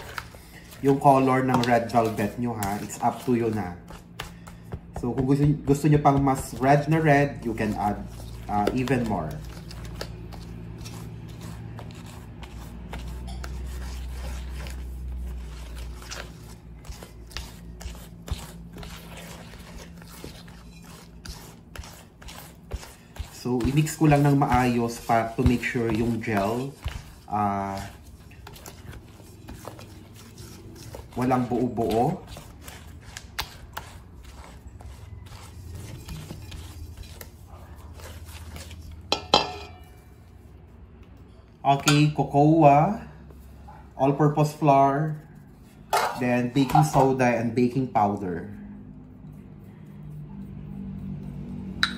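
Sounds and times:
spatula scraping metal bowl: 0:05.1 - 0:40.2, 0:44.4 - 0:48.4
metal bowl ringing clink: 0:39.1 - 0:40.0.

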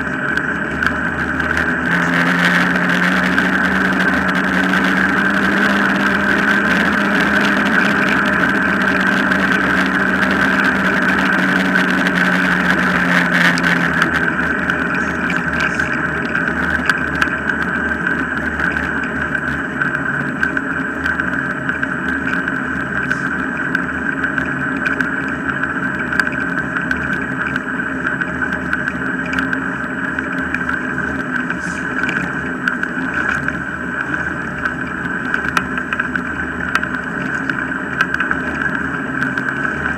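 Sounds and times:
low hum: 0:00.0 - 0:39.9
wheels rolling on tarmac: 0:00.0 - 0:39.9.

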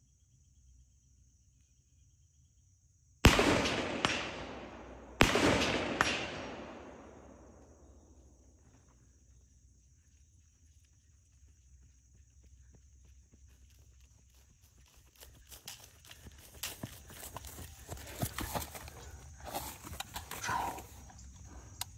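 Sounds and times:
rifle shots: 0:03.2 - 0:07.6.

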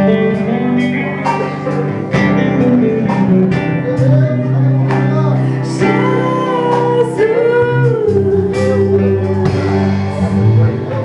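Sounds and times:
electric bass: 0:00.0 - 0:11.0
strummed acoustic guitar: 0:00.0 - 0:11.0
woman singing into microphone: 0:04.4 - 0:10.0.

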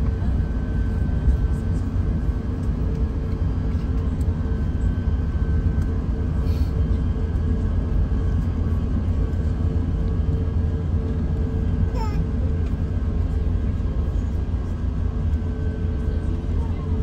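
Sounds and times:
aircraft cabin rumble: 0:00.0 - 0:17.0.

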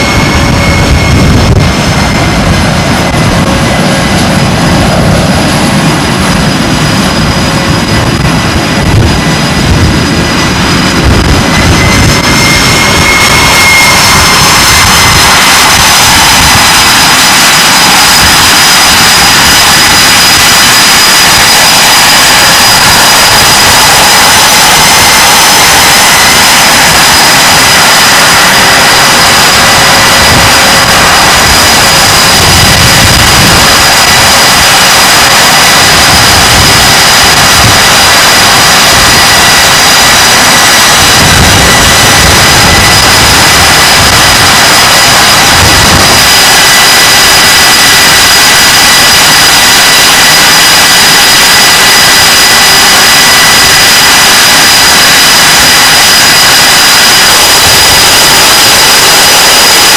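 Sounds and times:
jet engines roaring: 0:00.0 - 0:59.9.

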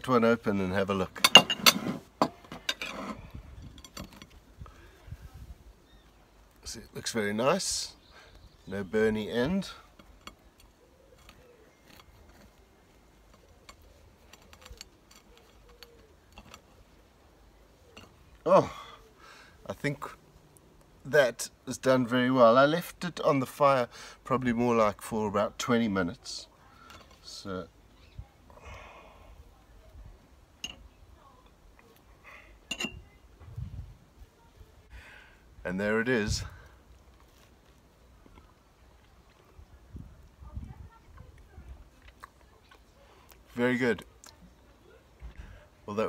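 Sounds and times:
knife clinking on ceramic pot: 0:32.7 - 0:33.0.

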